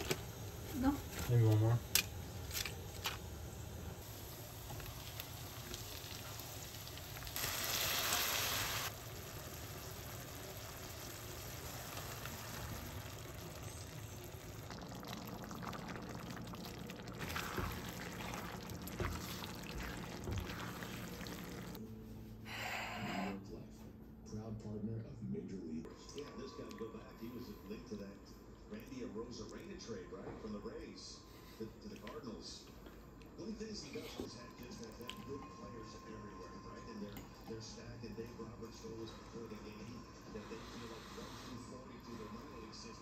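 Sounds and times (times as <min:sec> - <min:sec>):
food sizzling in a pan: 0:00.0 - 0:21.8
water boiling in a pot: 0:00.0 - 0:21.8.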